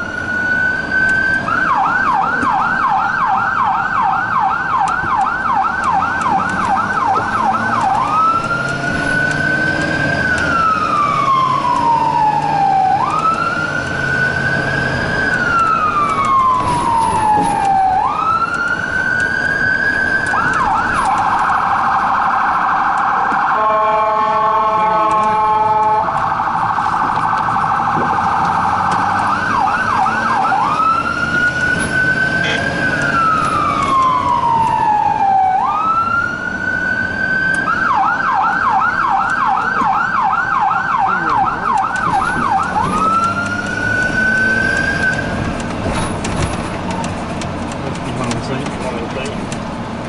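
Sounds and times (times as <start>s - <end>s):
electronic emergency siren: 0.0s - 47.2s
buzzing horn tone: 23.6s - 26.2s.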